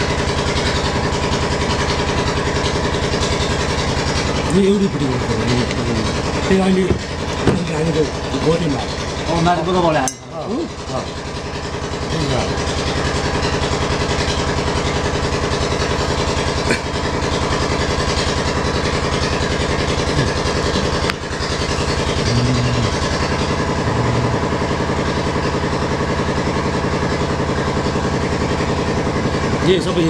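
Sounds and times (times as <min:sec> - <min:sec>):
engine running with rapid pulse: 0:00.0 - 0:30.0.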